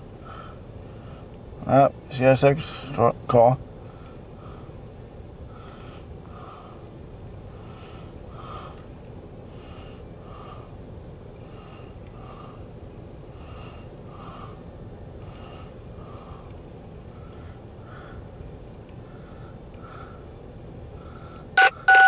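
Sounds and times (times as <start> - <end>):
steady low rumble: 0.0 - 22.0
short high-pitched repeating sound: 21.6 - 22.0.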